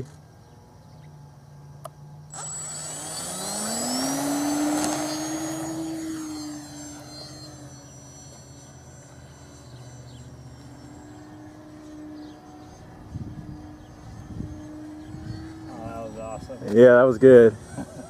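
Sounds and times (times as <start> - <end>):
model plane electric motor whine: 0.0 - 18.0.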